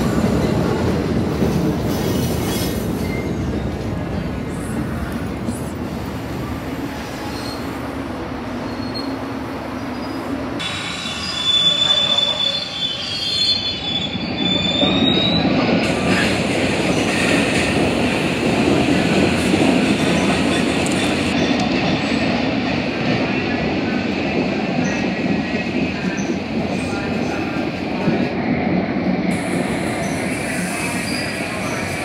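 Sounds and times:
train cars rumbling on rails: 0.0 - 32.0
train wheels squealing: 1.9 - 3.8, 6.9 - 7.8, 8.6 - 9.2, 9.8 - 16.2, 29.5 - 32.0.

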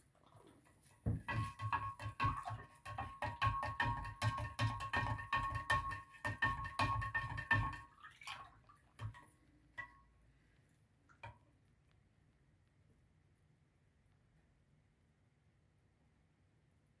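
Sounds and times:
taps on glass jar: 1.1 - 7.9
spoon stirring in glass jar: 1.2 - 7.9.

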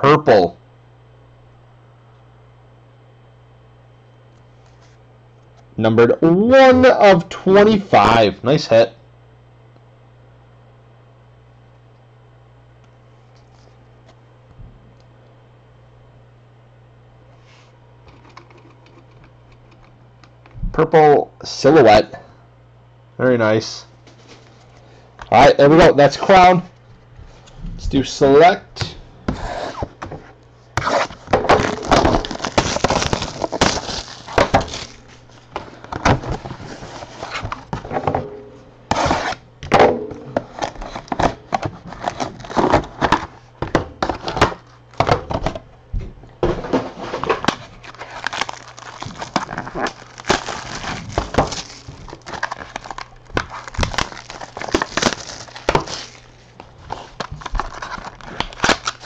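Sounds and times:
plastic wrapping tearing and crinkling: 30.8 - 37.8, 47.4 - 59.0.

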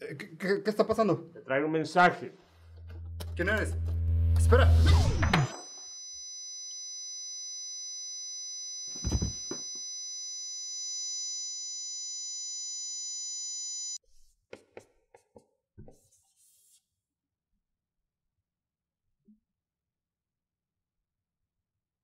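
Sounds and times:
high-pitched electronic ringing: 2.5 - 14.0
marker writing on whiteboard: 14.1 - 16.9.

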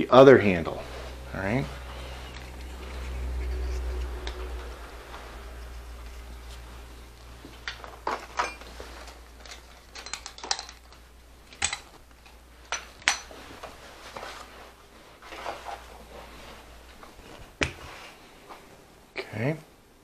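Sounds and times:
faint low hum: 0.0 - 19.8
metal tools clicking and clinking: 7.6 - 13.4.

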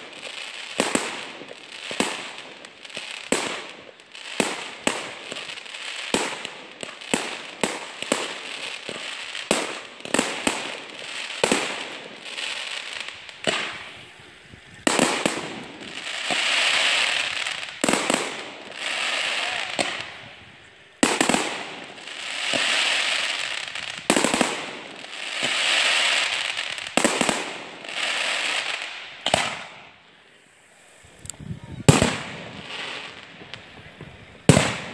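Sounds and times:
firework bangs: 0.0 - 30.1, 31.0 - 34.9
firework crackling rush: 0.0 - 34.9.

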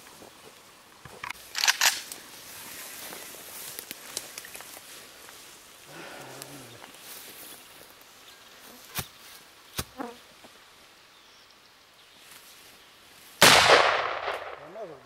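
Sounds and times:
gunshots: 13.4 - 14.8.

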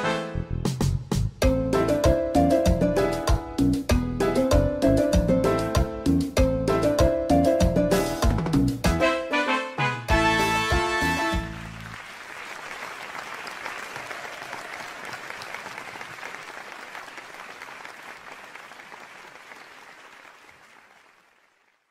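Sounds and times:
audience applause: 11.4 - 21.9.

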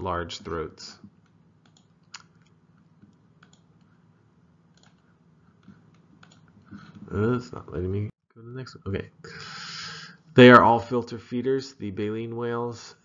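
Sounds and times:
low steady hum: 0.0 - 13.0
faint computer clicks: 1.0 - 3.9, 4.7 - 7.0.

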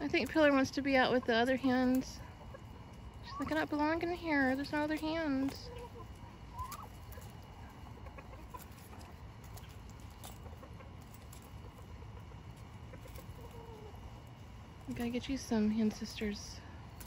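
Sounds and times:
chickens clucking faintly: 0.0 - 17.0.

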